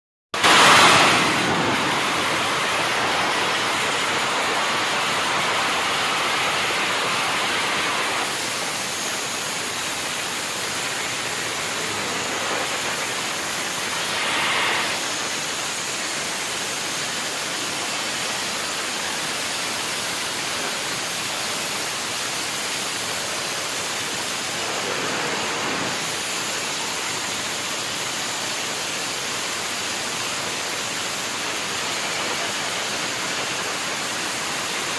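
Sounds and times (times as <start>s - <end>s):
motorcycle revving high: 10.4s - 15.2s.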